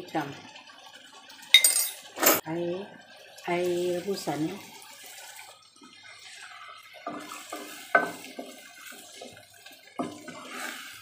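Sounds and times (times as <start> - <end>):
broth pouring into pan: 2.7 - 11.0
spatula stirring and scraping pan: 3.6 - 11.0.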